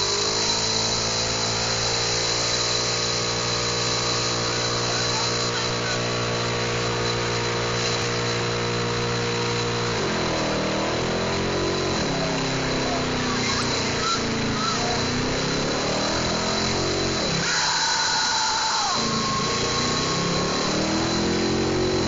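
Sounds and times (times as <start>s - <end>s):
car engine revving: 0.0s - 22.0s
tyres spinning: 9.6s - 22.0s.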